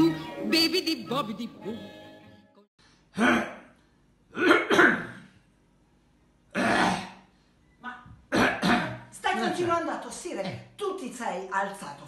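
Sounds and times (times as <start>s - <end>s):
man coughing: 4.4s - 5.3s.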